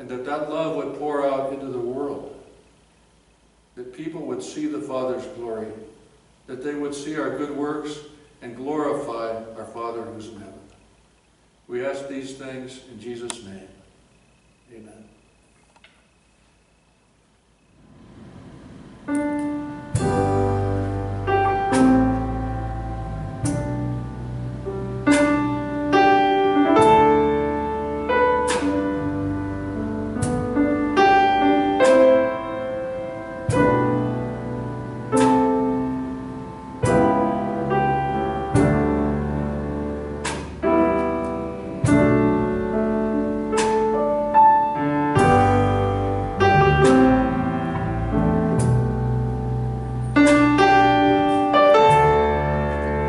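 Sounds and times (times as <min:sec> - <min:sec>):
slow piano chords: 0:17.7 - 0:53.0.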